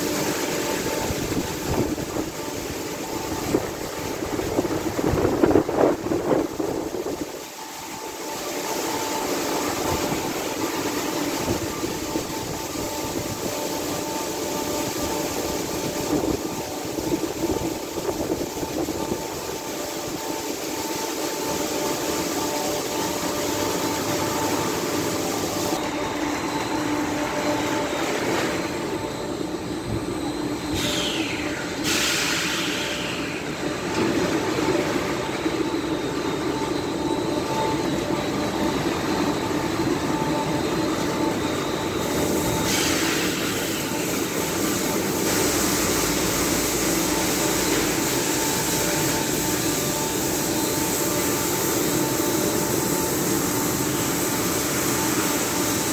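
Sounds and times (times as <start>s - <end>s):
car wash machine whining: 0.0s - 55.9s
brief falling whine: 23.6s - 52.2s.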